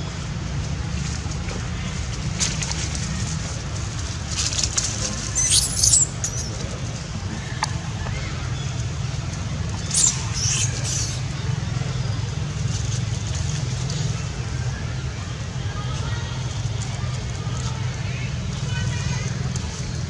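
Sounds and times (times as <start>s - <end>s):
baby monkey squealing: 5.3s - 6.6s, 9.8s - 11.3s.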